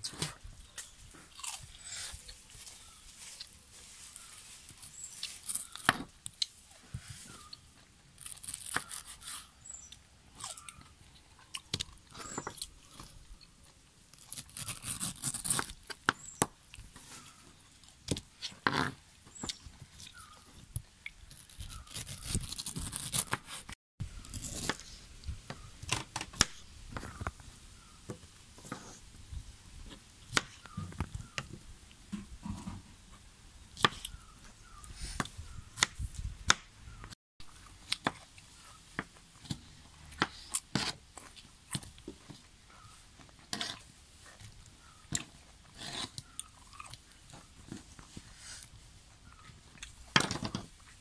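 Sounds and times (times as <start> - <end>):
knife crunching through pineapple: 1.2 - 3.5, 8.2 - 10.8, 14.1 - 17.4, 21.1 - 25.0.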